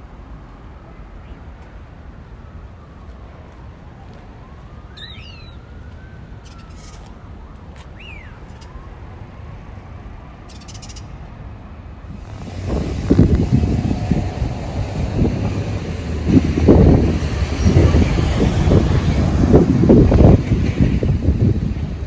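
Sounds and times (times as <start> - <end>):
distant traffic rumble: 0.0 - 22.0
bird chirps: 5.0 - 5.6, 6.4 - 7.1, 8.0 - 8.8, 10.5 - 11.1.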